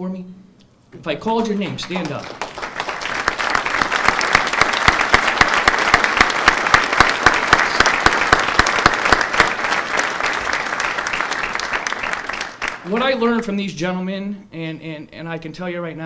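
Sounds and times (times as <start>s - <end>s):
close individual claps: 1.6s - 12.9s
audience applauding: 1.6s - 13.2s.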